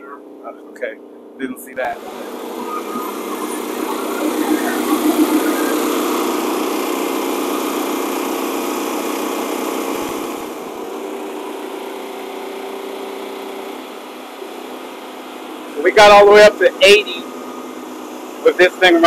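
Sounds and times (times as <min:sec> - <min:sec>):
generators engine drone: 0:00.0 - 0:19.0.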